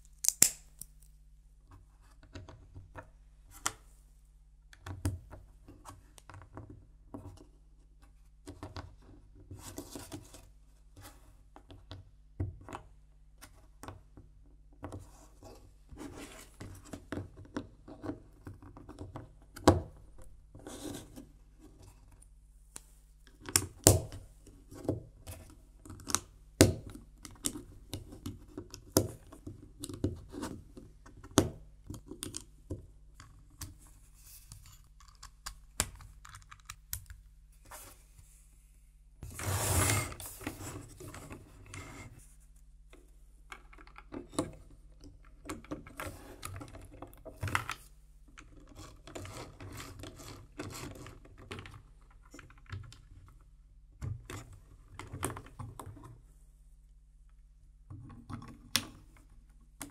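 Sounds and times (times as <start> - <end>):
plastic bricks snapping: 0.2 - 0.9.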